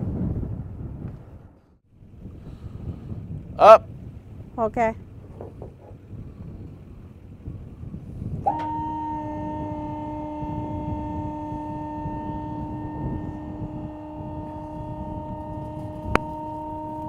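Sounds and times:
hydraulic pump whine: 0:07.2 - 0:17.0.

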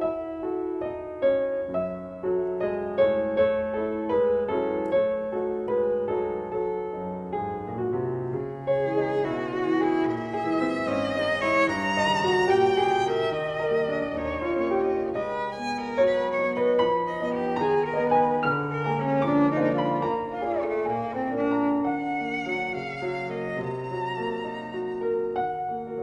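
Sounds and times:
piano accompaniment: 0:00.0 - 0:26.0
bowed violin melody: 0:08.6 - 0:26.0.

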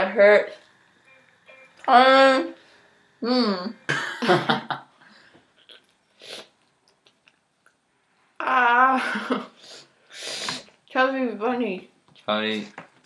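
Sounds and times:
sharp breath: 0:09.6 - 0:10.7.

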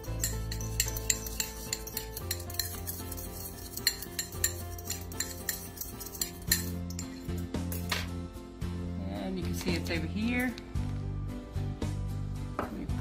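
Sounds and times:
metal utensil clinking in bowl: 0:00.0 - 0:08.1
background music: 0:00.0 - 0:13.0.

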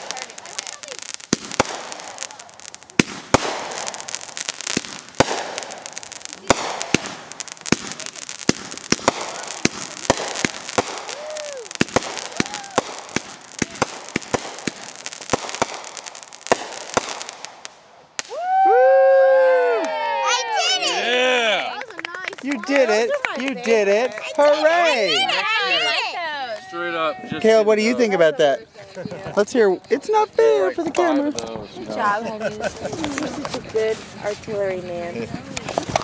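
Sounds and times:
firework bangs: 0:00.0 - 0:18.9, 0:29.0 - 0:36.0
firework crackling: 0:00.0 - 0:36.0.

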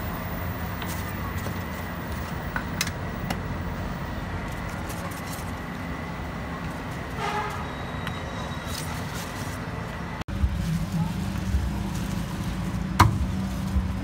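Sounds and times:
vehicle engines humming: 0:00.0 - 0:14.0.

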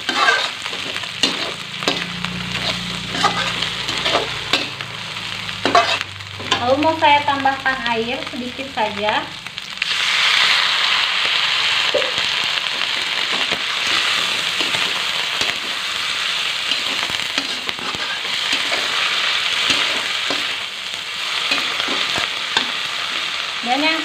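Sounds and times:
metal spatula scraping a pan: 0:00.0 - 0:04.8, 0:05.6 - 0:06.7, 0:13.3 - 0:20.6
oil sizzling in a wok: 0:00.0 - 0:24.0.

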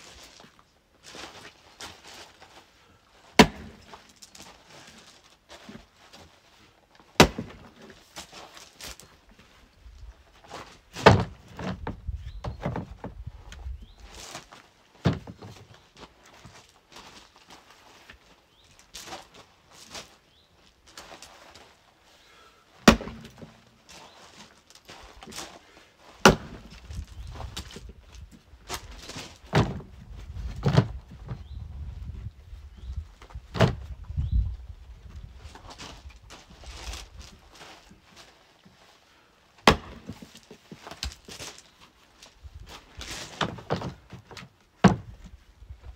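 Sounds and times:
axe splitting logs: 0:03.3 - 0:04.1, 0:07.2 - 0:08.3, 0:10.9 - 0:13.0, 0:15.0 - 0:15.5, 0:22.8 - 0:23.6, 0:26.2 - 0:27.9, 0:29.4 - 0:29.9, 0:39.6 - 0:41.4, 0:43.2 - 0:45.3
dull thumps and knocks: 0:11.0 - 0:13.3, 0:29.5 - 0:31.5, 0:43.3 - 0:45.3.

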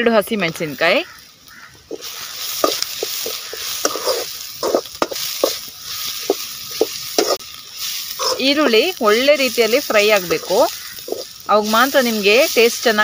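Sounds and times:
onions sizzling in oil: 0:00.1 - 0:13.0
metal ladle scraping pan: 0:01.9 - 0:12.7.

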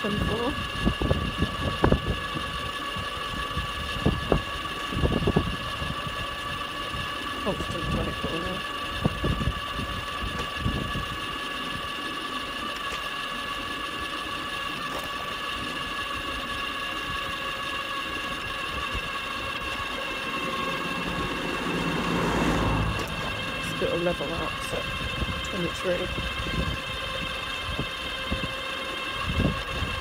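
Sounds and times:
low road rumble: 0:00.0 - 0:12.2, 0:18.3 - 0:30.0
electric motor whining: 0:00.0 - 0:30.0.

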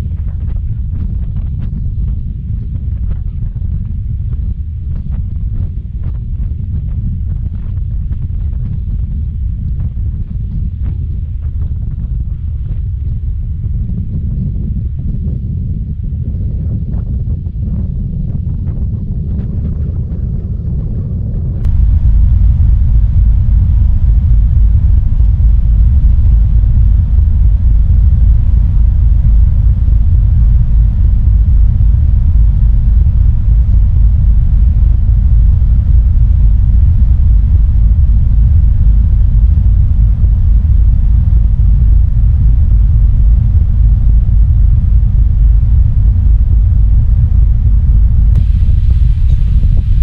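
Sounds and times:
ferry engines rumbling: 0:21.6 - 0:50.0.

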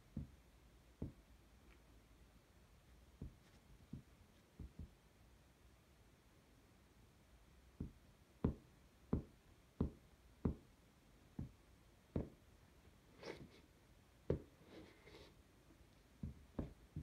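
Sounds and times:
sneaker sole tapping on hard floor: 0:16.2 - 0:17.0.

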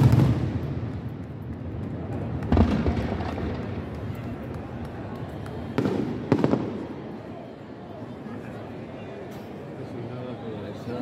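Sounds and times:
firework bang with low rumble: 0:00.0 - 0:01.6, 0:02.3 - 0:04.0, 0:05.8 - 0:06.9
distant fireworks bangs and crackle: 0:00.0 - 0:07.2.

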